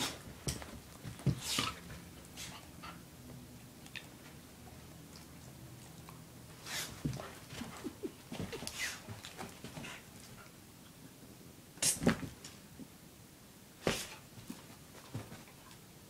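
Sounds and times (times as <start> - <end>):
dogs scuffling: 6.5 - 10.5.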